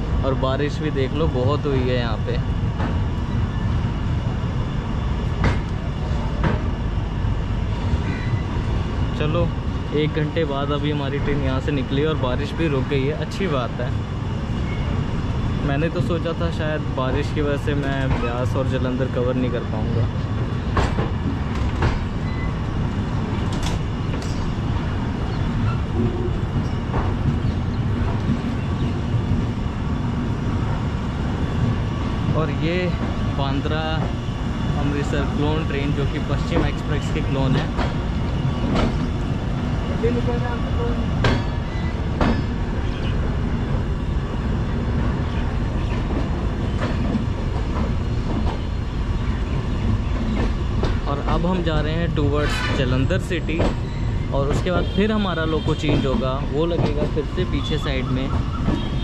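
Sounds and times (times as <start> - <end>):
train low rumble: 0.0 - 59.0
wheels clicking over rail joints: 49.8 - 59.0.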